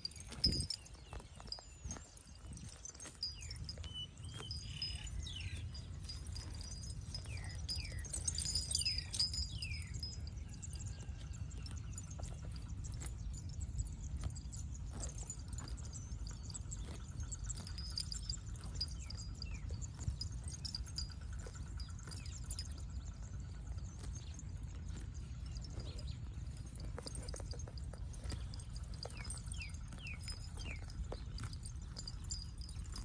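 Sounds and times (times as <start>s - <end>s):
cow chewing grass: 0.0s - 33.0s
birds whistling: 2.9s - 10.8s.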